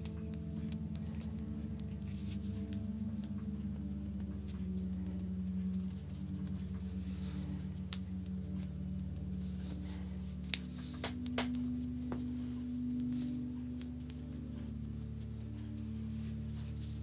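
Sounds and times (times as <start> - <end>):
hands rubbing on skin: 0.0 - 17.0
slow ambient music: 0.0 - 17.0.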